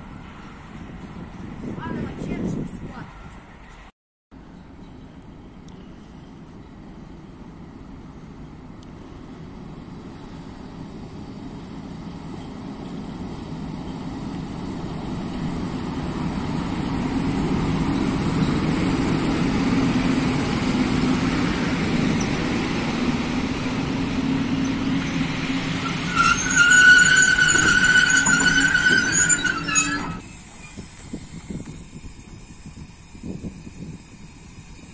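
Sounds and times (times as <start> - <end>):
freight train passing: 0.0 - 31.4
high-pitched wheel squeal: 24.3 - 30.9.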